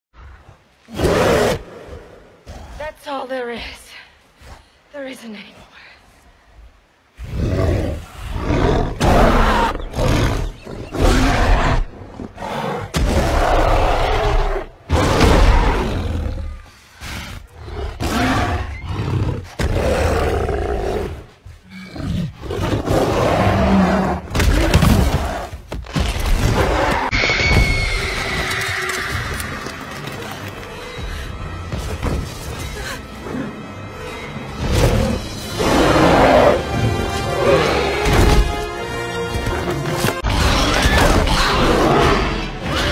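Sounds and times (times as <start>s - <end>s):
monster roaring and snarling: 7.2s - 16.7s, 34.6s - 38.7s, 39.5s - 42.9s.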